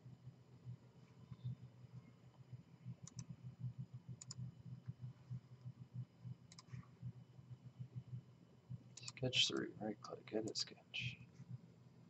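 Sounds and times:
faint low hum: 0.0s - 12.0s
computer mouse double-clicks: 3.0s - 3.3s, 4.2s - 4.4s, 6.5s - 6.8s.

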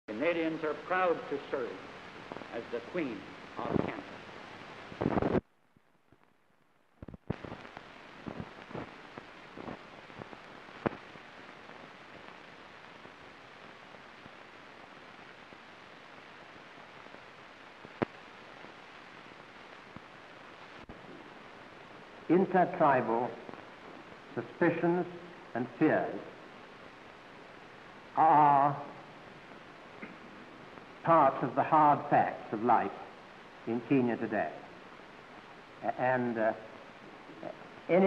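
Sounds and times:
old film soundtrack hiss: 0.1s - 38.0s
sharp clicks and pops: 4.9s - 6.4s, 7.0s - 13.2s, 17.8s - 18.8s.

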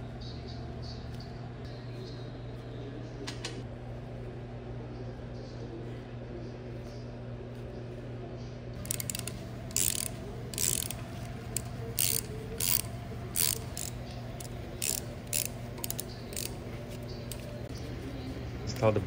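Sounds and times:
ratchet wrench clicking: 8.8s - 17.6s.

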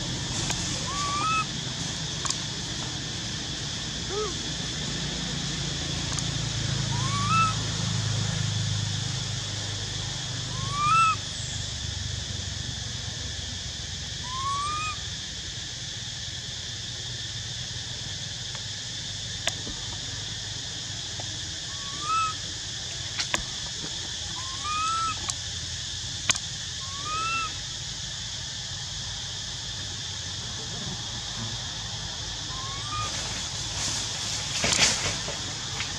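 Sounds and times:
steady high hiss: 0.0s - 35.9s
infant monkey cooing: 0.7s - 1.6s, 4.0s - 4.5s, 6.8s - 7.6s, 10.5s - 11.2s, 14.2s - 15.0s, 21.7s - 22.4s, 24.4s - 25.3s, 26.8s - 27.6s, 32.5s - 33.2s
sharp clicks: 6.1s - 6.3s.

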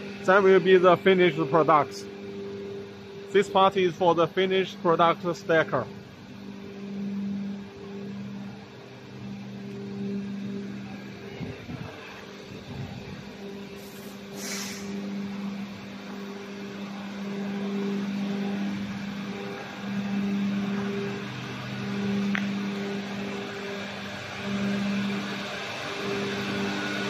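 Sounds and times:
factory machinery humming: 0.0s - 27.0s
brief hiss: 13.8s - 15.0s.

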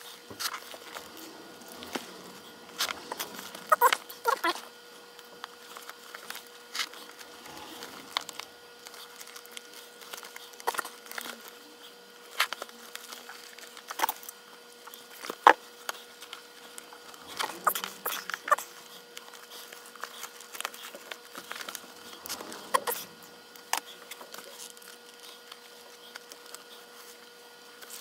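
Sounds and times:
leather rustling and creaking: 0.4s - 4.5s.

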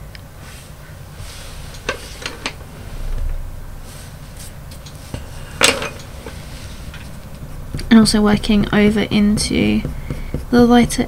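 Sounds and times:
pencil scratching on paper: 7.7s - 11.0s.

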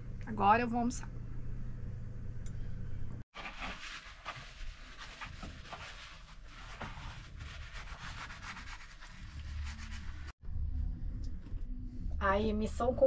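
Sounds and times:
scraping and rubbing strokes: 3.4s - 10.4s.

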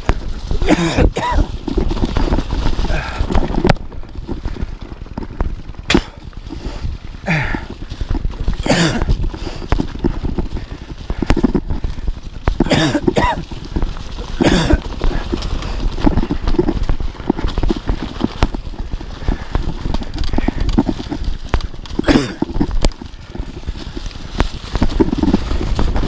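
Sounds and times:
bike tyres rumbling on dirt: 0.0s - 26.0s
rider coughing breath: 0.2s - 3.6s, 5.8s - 16.8s, 21.9s - 22.7s.

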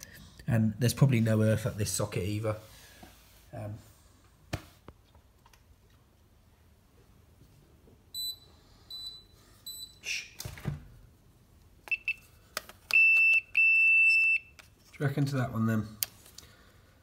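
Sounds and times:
voltage tester beeping: 11.9s - 12.2s, 12.9s - 14.5s.

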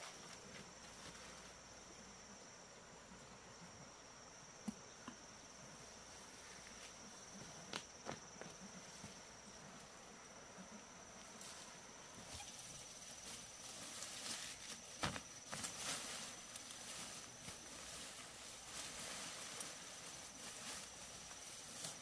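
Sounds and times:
faint outdoor ambience: 0.0s - 22.0s
high-pitched insect trill: 0.0s - 22.0s
soft rustling: 11.3s - 22.0s.

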